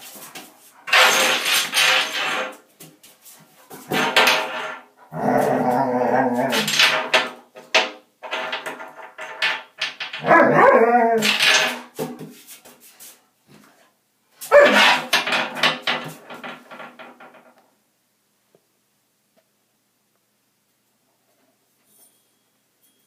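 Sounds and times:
puppy barking: 10.2s - 10.9s, 14.5s - 14.9s.

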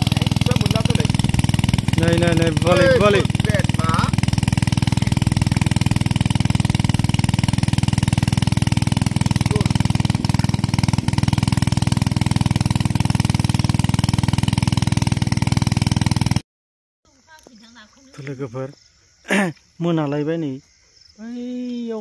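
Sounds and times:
small engine running: 0.0s - 16.4s.

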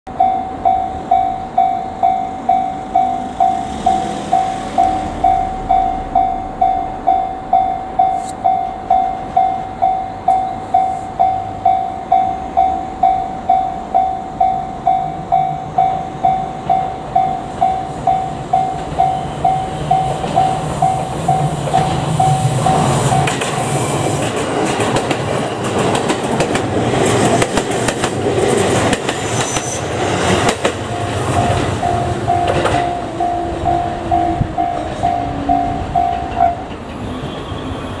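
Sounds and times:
level crossing bell dinging: 0.2s - 23.3s
train wheels clattering over rails: 15.8s - 38.0s.

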